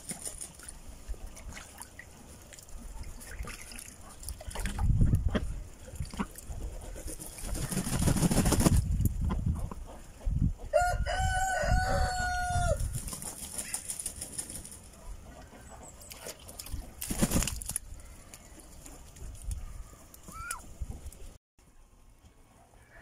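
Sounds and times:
duck flapping wings: 0.0s - 0.8s, 6.5s - 9.1s, 12.8s - 14.9s, 16.6s - 19.2s
water splashing in metal tub: 0.0s - 5.0s
rooster crowing: 10.7s - 12.8s.

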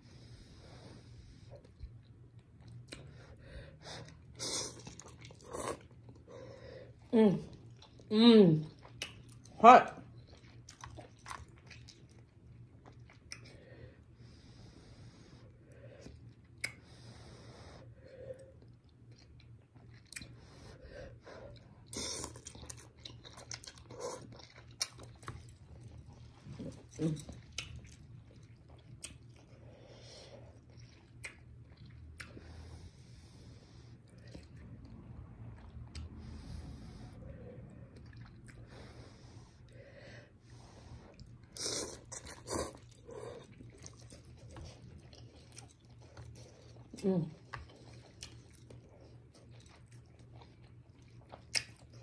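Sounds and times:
wet chewing and lip smacks: 1.5s - 3.4s, 4.0s - 6.3s, 8.7s - 13.6s, 16.0s - 17.2s, 18.3s - 20.6s, 21.4s - 32.9s, 33.7s - 36.4s, 37.0s - 38.8s, 40.8s - 52.0s.

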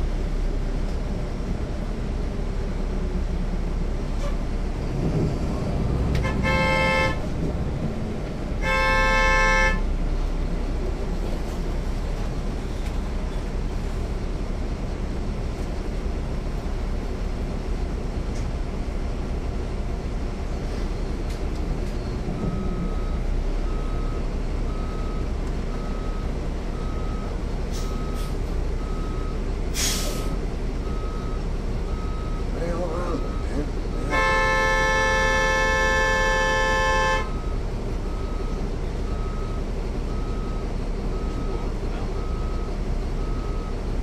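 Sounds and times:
bus diesel engine: 0.0s - 44.0s
road noise: 0.0s - 44.0s
vehicle horn honking: 6.2s - 7.2s, 8.6s - 9.9s, 34.0s - 37.4s.

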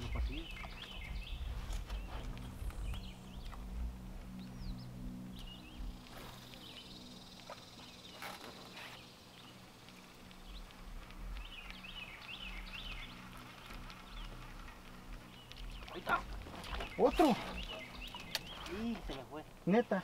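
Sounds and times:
small birds chirping: 0.0s - 20.0s
sharp clicks: 17.6s - 19.2s.

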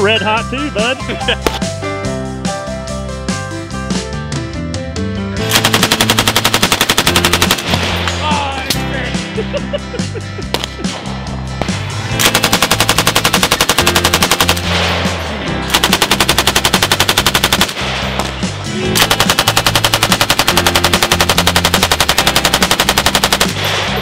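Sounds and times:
background music with bass line: 0.0s - 24.0s
machine gun firing bursts: 5.4s - 8.2s, 12.2s - 24.0s.

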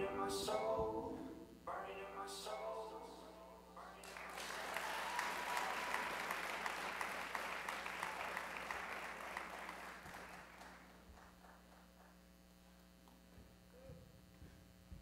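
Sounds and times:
audience applause: 4.0s - 12.2s.

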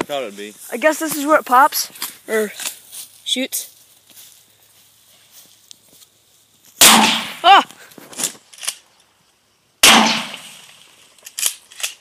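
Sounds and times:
shotgun shots ringing: 6.8s - 7.4s, 9.8s - 10.6s.

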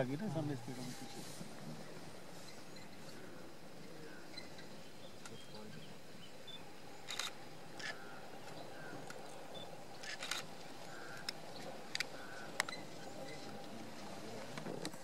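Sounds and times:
faint outdoor background: 0.0s - 15.0s
camera shutter clicks: 7.0s - 8.0s, 10.0s - 10.5s.

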